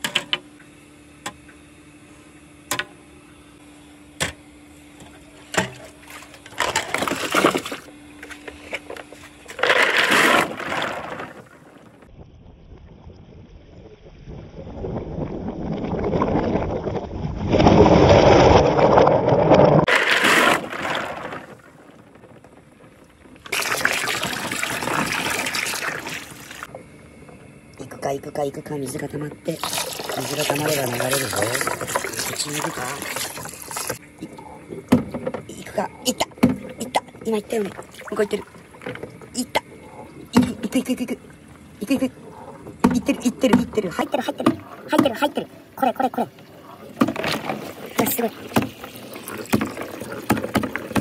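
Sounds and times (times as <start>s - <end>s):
steady low hum: 0.0s - 51.0s
water pouring into plastic tub: 5.9s - 7.9s, 9.3s - 11.5s, 14.7s - 21.9s, 23.4s - 26.7s, 29.5s - 34.0s, 37.5s - 39.1s, 47.0s - 51.0s.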